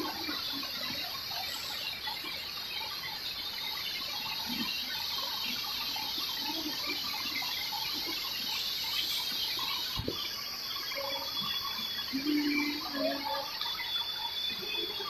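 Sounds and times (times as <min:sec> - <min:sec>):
high insect drone: 0:00.0 - 0:15.0.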